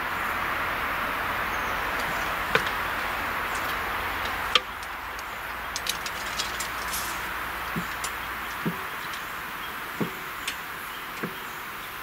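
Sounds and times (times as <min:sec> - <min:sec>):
barrier drive running noise: 0:00.0 - 0:12.0
light ticks: 0:02.0 - 0:09.3.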